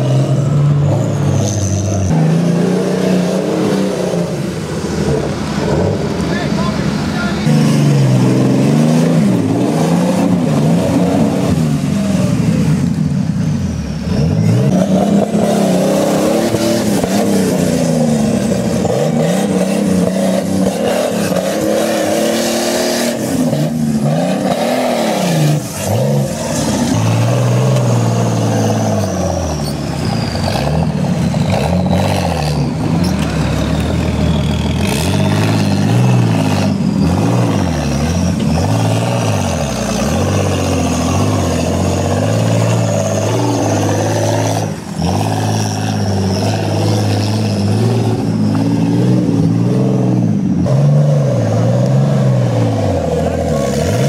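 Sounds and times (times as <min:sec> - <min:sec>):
off-road engines revving: 0:00.0 - 0:54.0.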